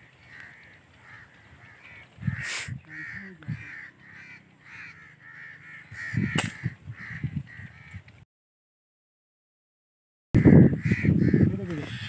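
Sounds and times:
birds calling: 0.0s - 8.2s, 10.4s - 12.0s
air rifle shot: 6.3s - 6.7s.

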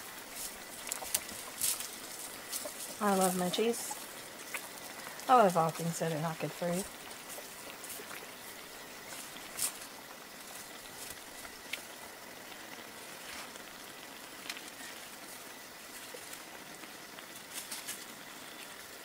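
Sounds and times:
sauce simmering in a skillet: 0.0s - 19.0s.

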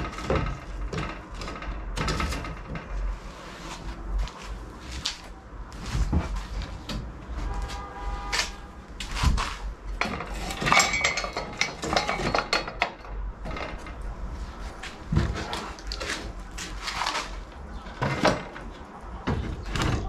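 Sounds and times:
hand tools clattering and knocking: 0.0s - 3.1s, 9.0s - 20.0s.

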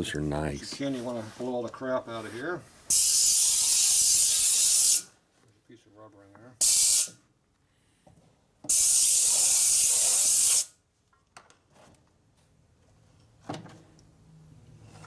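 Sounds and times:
compressed air blow gun hissing: 2.9s - 5.1s, 6.6s - 7.2s, 8.7s - 10.7s.

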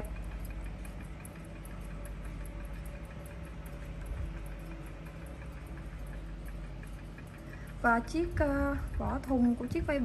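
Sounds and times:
clocks ticking: 0.0s - 10.0s
low hum: 0.0s - 10.0s.

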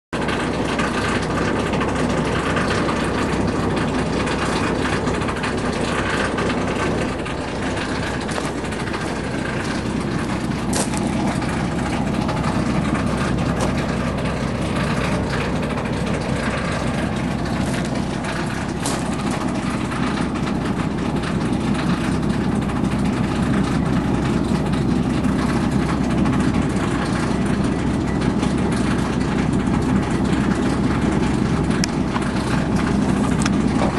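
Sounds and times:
machine rumble: 0.1s - 33.9s.

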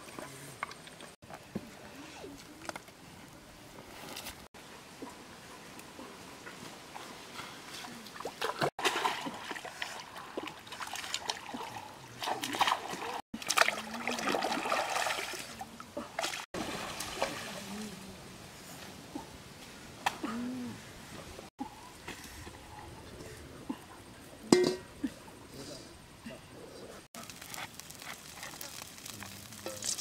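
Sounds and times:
water splashing and sloshing: 4.9s - 19.3s.

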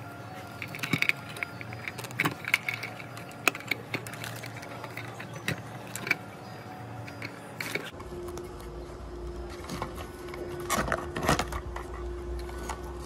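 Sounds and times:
faint steady hum: 0.0s - 13.0s
plastic clicks: 0.4s - 6.3s.

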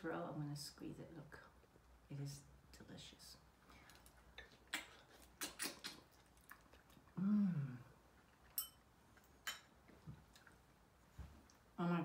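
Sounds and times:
chewing: 3.7s - 7.2s, 7.8s - 10.8s
wet slurping and sucking: 4.7s - 6.3s
person humming mmm: 7.1s - 8.0s.

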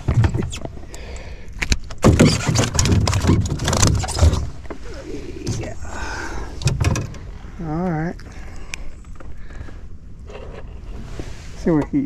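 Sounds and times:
fish splashing and thrashing: 1.7s - 4.8s.

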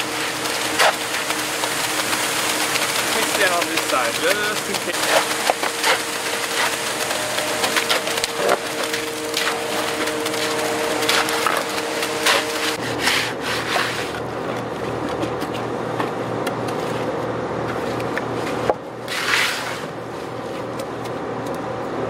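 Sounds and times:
truck engine running: 0.0s - 12.8s
shovel and rake scraping concrete: 0.0s - 14.2s, 19.0s - 20.0s.

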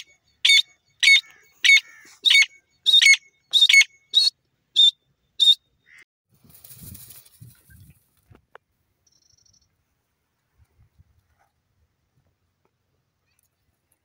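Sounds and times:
soft rustle: 6.3s - 8.4s.

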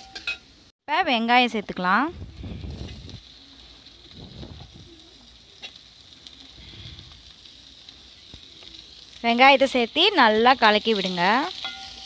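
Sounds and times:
metal spatula scraping and tapping: 0.0s - 0.5s, 11.0s - 12.0s
vegetables sizzling in hot oil: 0.0s - 12.0s.

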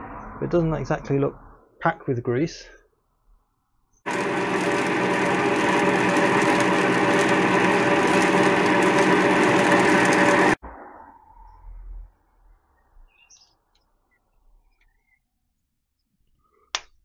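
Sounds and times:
milling machine mechanical rumble: 4.1s - 10.6s.

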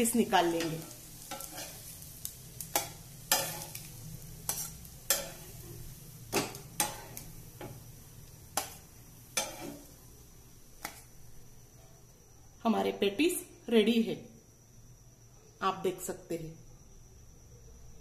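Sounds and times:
hot oil sizzling: 0.0s - 12.1s
steel spatula clinking on metal: 0.6s - 1.9s, 2.7s - 3.9s, 4.5s - 5.5s, 9.4s - 9.9s.

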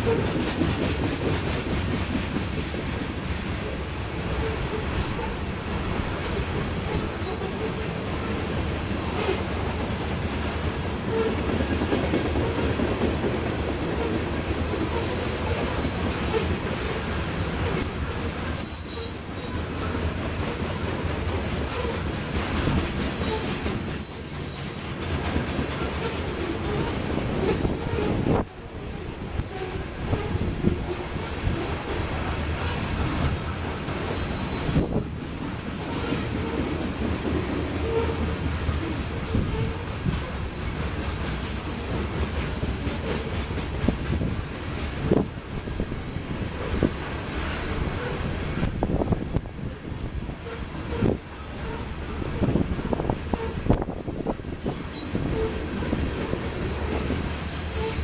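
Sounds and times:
steel wheels rumbling on rails: 0.0s - 58.0s
wheel squeals and knocks: 22.8s - 24.9s, 41.3s - 42.2s, 57.4s - 58.0s.

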